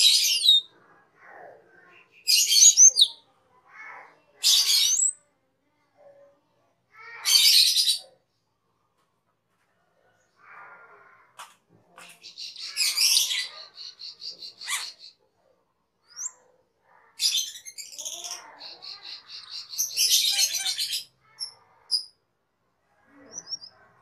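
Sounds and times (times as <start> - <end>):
starling singing: 1.8 - 3.2, 4.4 - 5.2, 12.0 - 15.2, 16.1 - 16.4, 17.2 - 22.2, 23.2 - 24.0.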